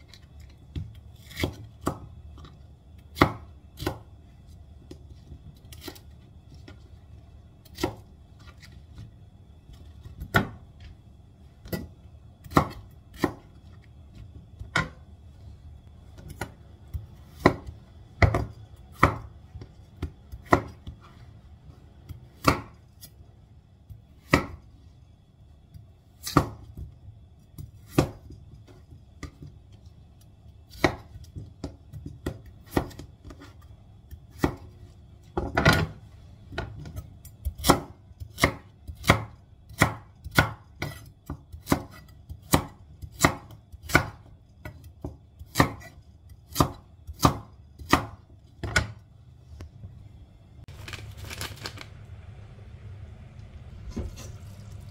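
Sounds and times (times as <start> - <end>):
knife chopping on wooden board: 0.7 - 2.1, 7.6 - 8.0, 11.7 - 13.5, 16.2 - 19.3, 20.0 - 21.0, 22.1 - 22.8, 37.4 - 49.0.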